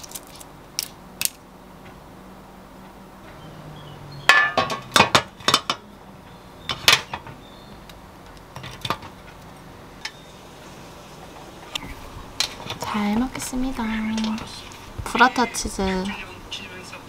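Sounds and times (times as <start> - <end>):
dishes clinking on tray: 4.3 - 5.8.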